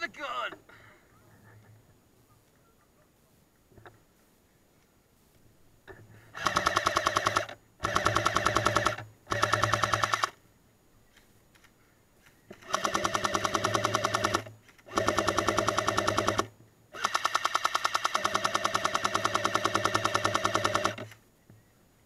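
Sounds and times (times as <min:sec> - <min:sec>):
airsoft gun full-auto bursts: 0:06.3 - 0:10.4, 0:12.5 - 0:21.2.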